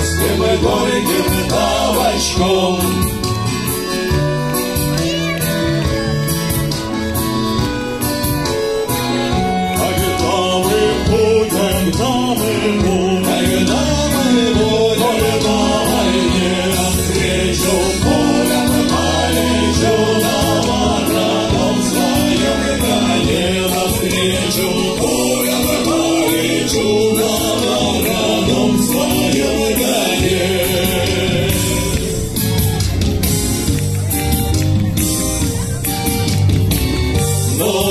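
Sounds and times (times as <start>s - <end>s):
choir singing with accompaniment: 0.0s - 4.2s, 9.2s - 33.4s, 37.1s - 37.9s.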